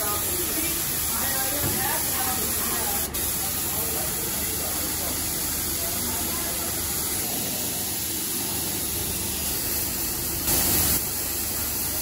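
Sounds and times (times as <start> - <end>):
air spray gun hissing: 0.0 - 12.0.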